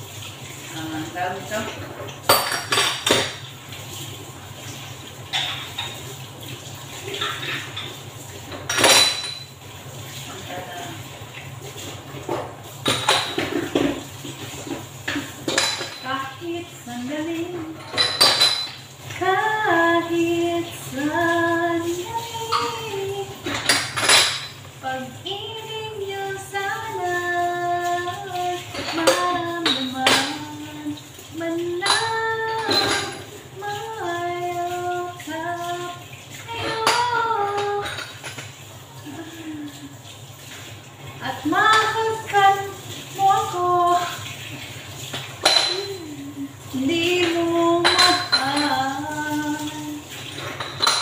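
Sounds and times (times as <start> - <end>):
water splashing in sink: 0.0 - 51.0
dishes clinking and clattering: 1.5 - 3.6, 5.2 - 6.2, 7.0 - 10.5, 11.4 - 16.4, 17.3 - 19.3, 20.0 - 24.8, 26.3 - 39.5, 40.6 - 42.8, 43.4 - 51.0
woman singing slow melody: 16.0 - 18.0, 19.2 - 23.5, 24.8 - 38.0, 41.2 - 44.2, 45.5 - 50.1.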